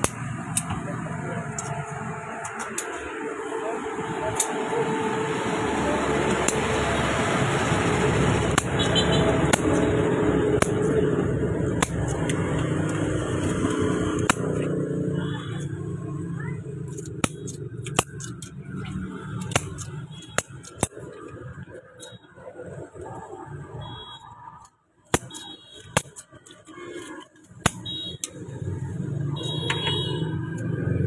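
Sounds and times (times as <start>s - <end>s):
street traffic noise: 0.0s - 31.0s
cleaver chopping meat: 10.6s - 11.0s, 13.6s - 14.7s.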